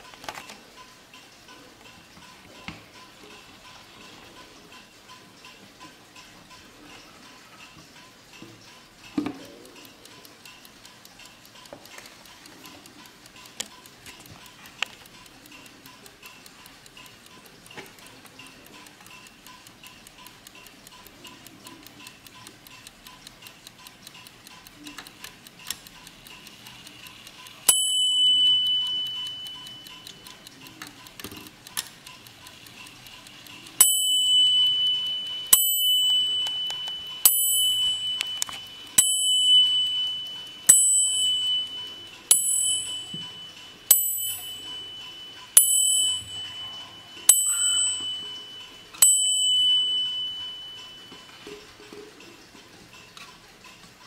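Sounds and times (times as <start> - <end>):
clock ticking: 0.0 - 54.0
clock striking brass bell: 39.0 - 51.2.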